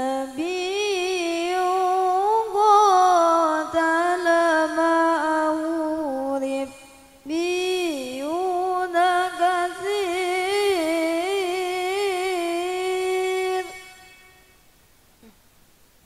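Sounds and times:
person reciting melodically: 0.0 - 14.0.

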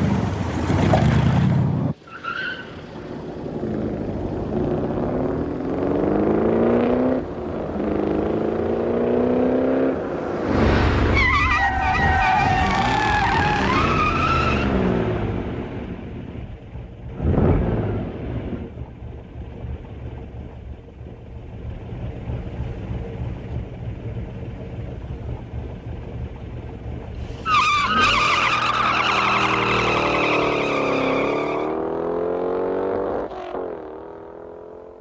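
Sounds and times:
car engines revving: 0.0 - 35.0
tire squeal: 2.0 - 2.8, 10.8 - 14.9, 27.2 - 31.7.

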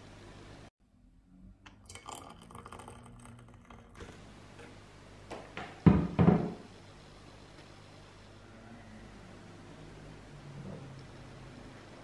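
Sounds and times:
water poured into a mug: 1.7 - 4.2
kettle set down on counter: 5.6 - 6.6.

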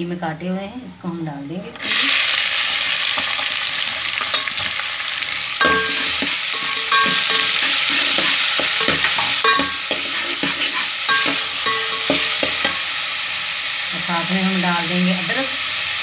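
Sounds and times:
onions sizzling in oil: 1.8 - 16.0
ladle scraping and clinking pot: 4.3 - 4.6, 5.6 - 12.9.

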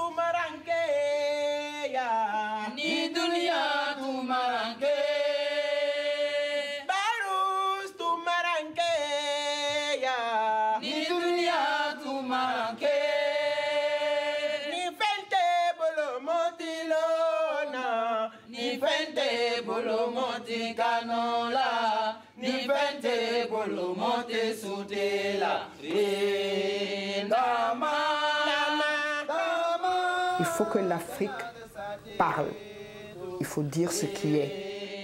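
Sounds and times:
person singing unaccompanied: 0.0 - 35.0.

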